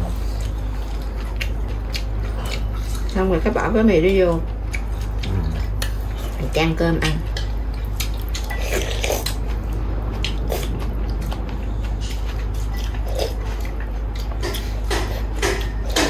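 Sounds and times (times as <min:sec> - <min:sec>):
chewing: 0:00.0 - 0:16.0
steady low hum: 0:00.0 - 0:16.0.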